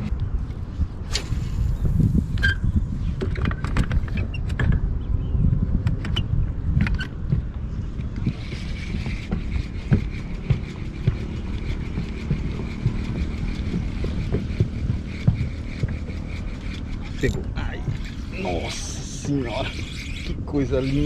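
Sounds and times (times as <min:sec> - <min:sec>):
water and hull rumble: 0:00.0 - 0:21.0
electric motor whining: 0:08.0 - 0:21.0.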